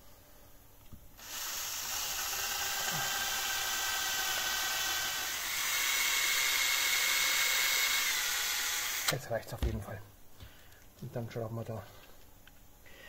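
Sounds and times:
cordless drill whining: 0:01.2 - 0:09.2
drill bit cutting plastic: 0:01.2 - 0:09.2.

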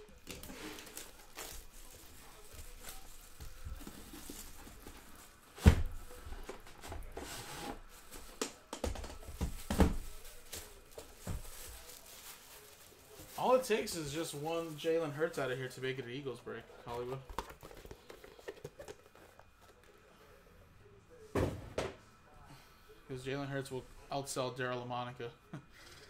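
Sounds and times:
light rustling of packs: 0:00.1 - 0:15.5.

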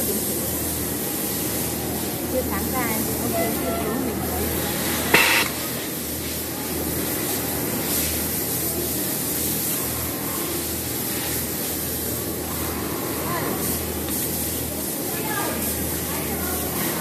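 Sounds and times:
low machine hum: 0:00.0 - 0:17.0
sewing machinery hissing: 0:00.0 - 0:17.0
sharp click: 0:05.1 - 0:05.6.

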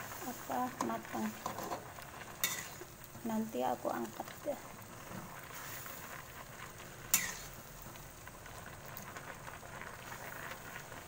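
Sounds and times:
metal spatula stirring: 0:00.0 - 0:03.0, 0:07.1 - 0:07.6
boiling water bubbling: 0:00.0 - 0:11.0.

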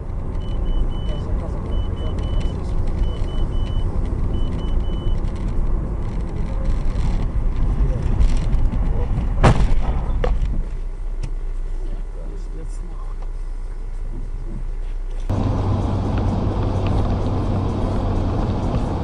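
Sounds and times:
car road and engine rumble: 0:00.0 - 0:19.0
high electronic beeps: 0:00.4 - 0:05.2
sharp bang: 0:09.4 - 0:10.4.

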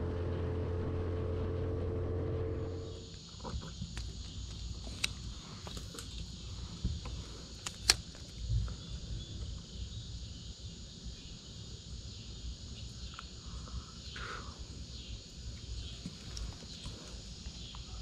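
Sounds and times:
low rumble: 0:00.0 - 0:04.0
insects chirring: 0:02.6 - 0:18.0
sharp clicks: 0:07.6 - 0:08.4.

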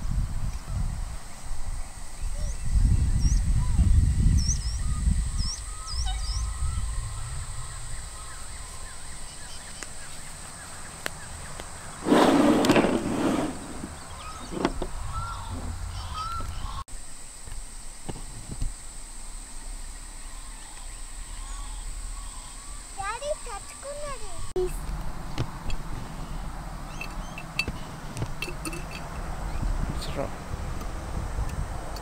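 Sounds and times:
wind rumbling on microphone: 0:00.0 - 0:16.8, 0:24.3 - 0:32.0
small birds chirping: 0:00.5 - 0:12.2, 0:13.6 - 0:17.1, 0:19.6 - 0:30.3.

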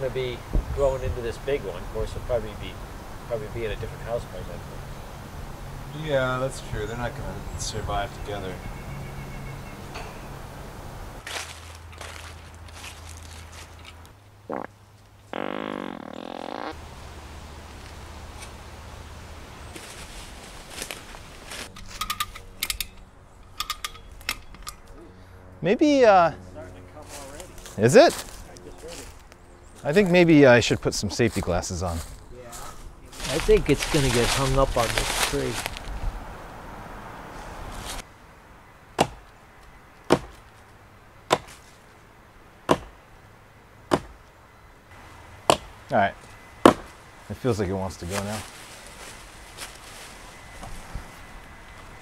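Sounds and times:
axe chopping tree trunk: 0:39.0 - 0:39.2, 0:40.1 - 0:40.4, 0:41.3 - 0:41.6, 0:42.7 - 0:43.0, 0:43.9 - 0:44.2, 0:45.5 - 0:45.7, 0:46.6 - 0:47.0.

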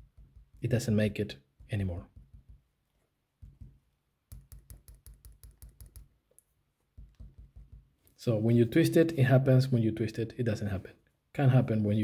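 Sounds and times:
pencil tip tapping on paper: 0:01.6 - 0:02.7, 0:03.4 - 0:06.1, 0:07.0 - 0:08.0.

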